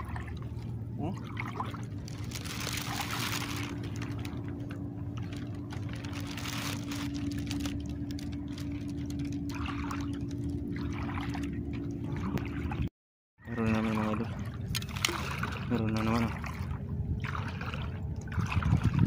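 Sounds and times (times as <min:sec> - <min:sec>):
low hum: 0:00.0 - 0:19.0
sea water sloshing: 0:00.0 - 0:19.0.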